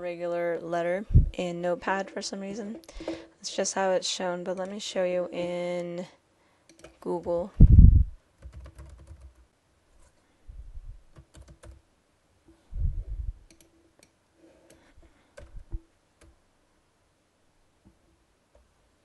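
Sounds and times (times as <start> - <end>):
computer keyboard typing: 6.7 - 7.1, 8.4 - 9.4, 11.1 - 11.8.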